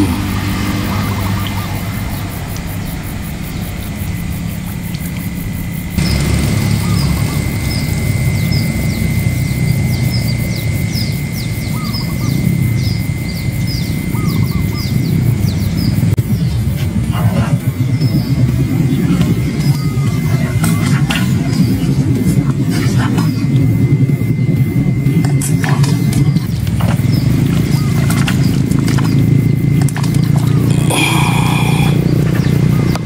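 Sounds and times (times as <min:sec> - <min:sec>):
high steady whine: 0:00.0 - 0:32.2
bird chirping: 0:05.4 - 0:16.6.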